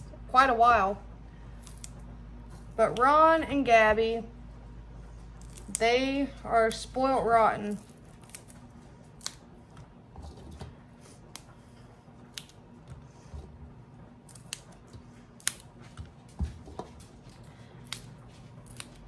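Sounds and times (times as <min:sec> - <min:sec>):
green beans snapping: 0:01.6 - 0:02.0, 0:05.4 - 0:05.8, 0:07.7 - 0:09.5, 0:12.3 - 0:12.7, 0:14.2 - 0:15.7, 0:17.8 - 0:19.0.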